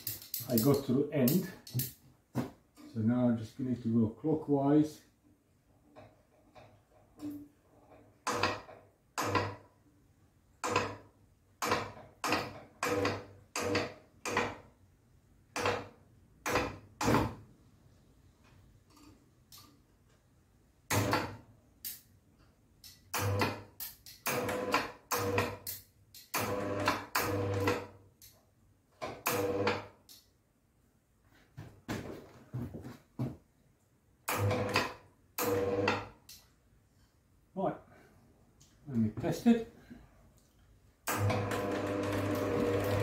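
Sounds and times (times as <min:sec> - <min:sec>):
screw clicking as it is turned: 0:00.0 - 0:01.9.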